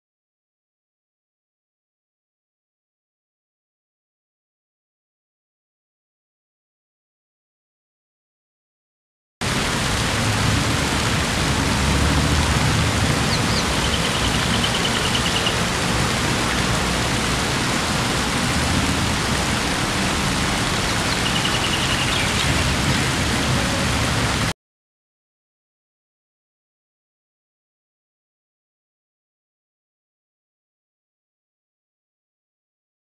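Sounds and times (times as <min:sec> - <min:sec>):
fountain water splashing: 0:09.4 - 0:24.5
high rapid chirping trills: 0:13.4 - 0:15.6, 0:21.0 - 0:22.5.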